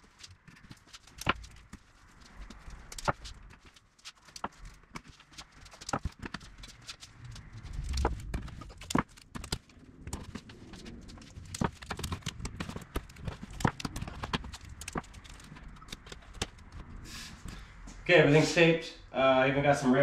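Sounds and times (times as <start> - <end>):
tape rustling: 0.0 - 17.8.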